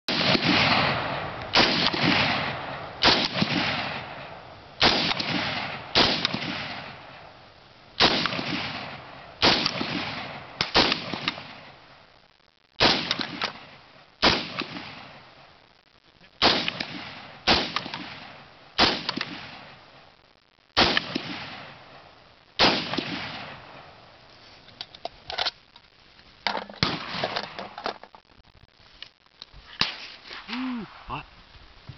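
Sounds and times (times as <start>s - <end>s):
rifle shots echoing: 0.1s - 7.3s, 8.0s - 11.8s, 12.8s - 15.3s, 16.4s - 19.8s, 20.8s - 24.0s, 26.8s - 27.8s.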